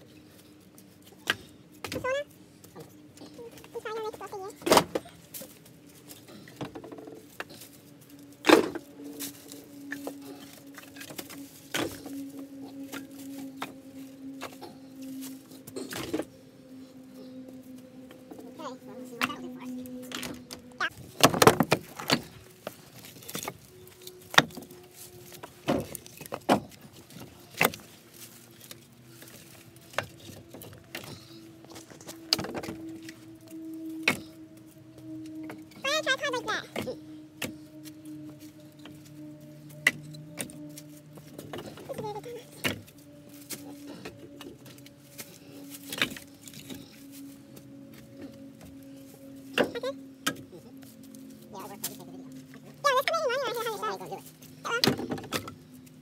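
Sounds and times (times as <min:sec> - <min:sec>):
steady low hum: 0:00.0 - 0:56.0
firewood pieces knocking together: 0:08.4 - 0:12.2, 0:20.1 - 0:24.7, 0:42.6 - 0:46.8.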